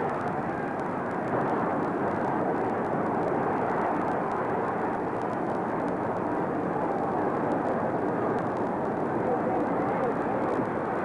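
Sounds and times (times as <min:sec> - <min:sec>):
faint ticks: 0:00.0 - 0:10.8
steady noise hiss: 0:00.0 - 0:11.0.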